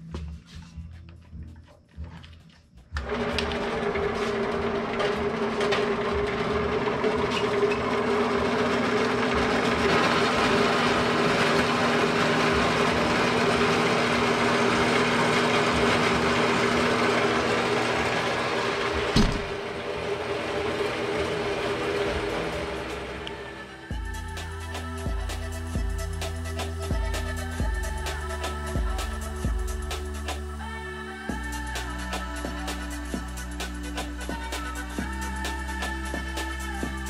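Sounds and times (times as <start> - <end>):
band saw cutting metal: 3.1 - 23.3.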